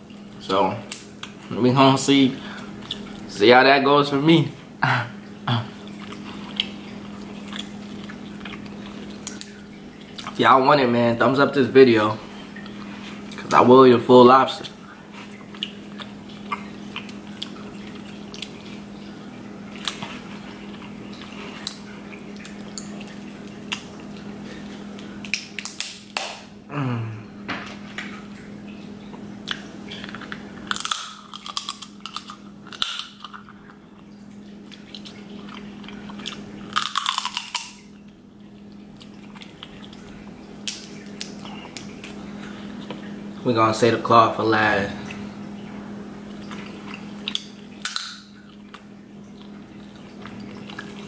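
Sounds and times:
steady low hum: 0.0s - 51.0s
wet chewing and lip smacking: 2.5s - 3.3s, 5.7s - 10.4s, 14.6s - 26.3s, 29.1s - 43.1s, 46.1s - 51.0s
crab shell cracking clicks: 47.3s - 48.3s.

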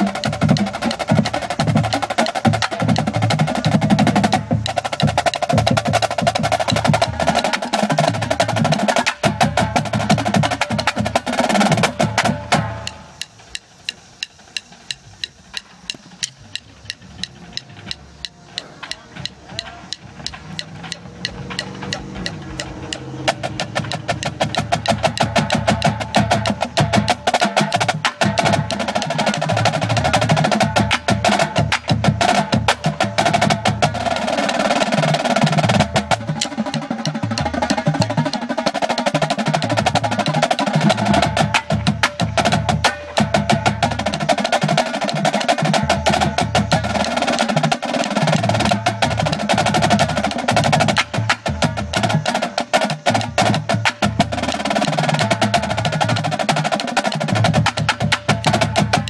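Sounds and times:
snare drums playing fast: 0.0s - 59.0s
lower drum part: 14.5s - 59.0s.

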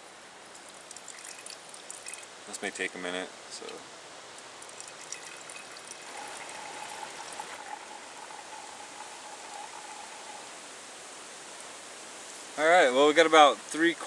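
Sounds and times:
faint steady tone: 0.0s - 12.5s
water trickling into metal pot: 0.5s - 2.3s, 4.4s - 10.7s.

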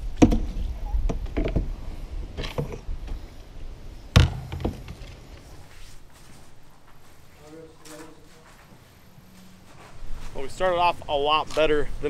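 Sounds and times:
paddle knocking on canoe hull: 4.2s - 5.0s.

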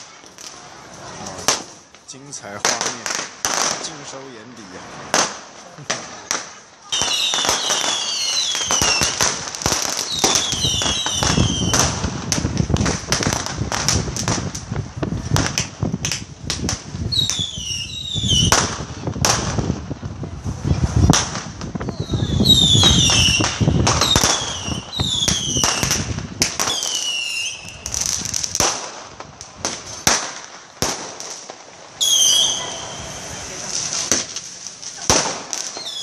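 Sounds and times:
fireworks bangs and cracks: 0.0s - 36.0s
falling firework whistles: 6.9s - 12.5s, 17.1s - 18.8s, 21.8s - 29.0s, 29.7s - 36.0s.

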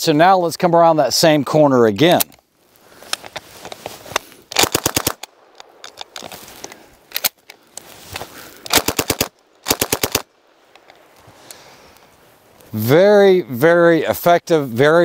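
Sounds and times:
submachine gun firing bursts: 4.5s - 5.2s, 8.7s - 10.3s.

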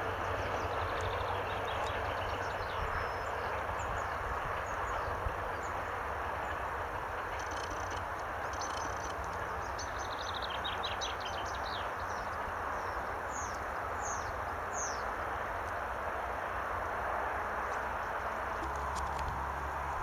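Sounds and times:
small birds singing: 0.0s - 15.8s
steady rustle: 6.5s - 9.9s.

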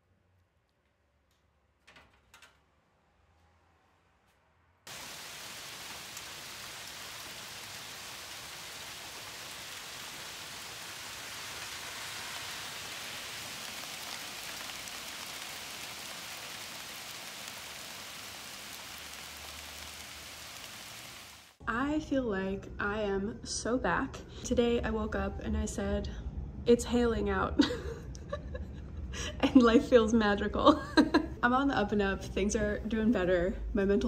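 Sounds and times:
hail falling on leaves: 4.9s - 21.6s.

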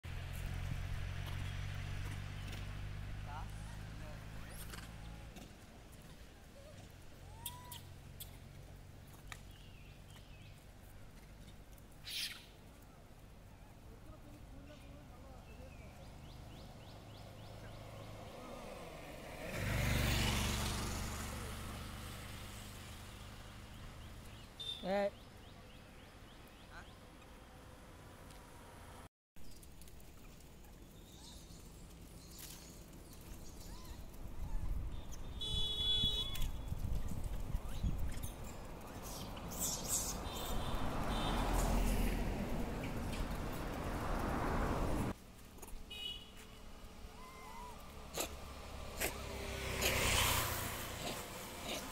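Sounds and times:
monkey calls and chirps: 6.6s - 8.5s, 11.4s - 12.6s, 30.2s - 35.4s, 37.0s - 40.8s, 47.1s - 48.3s.

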